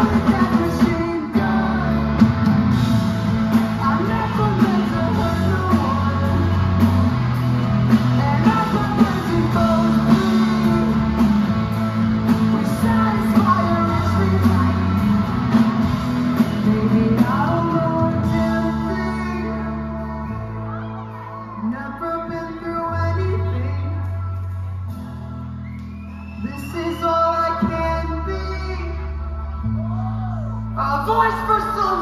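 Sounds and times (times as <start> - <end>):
drum kit beat: 0.0 - 18.7
distorted electric guitars: 0.0 - 21.6
bass guitar: 0.0 - 32.0.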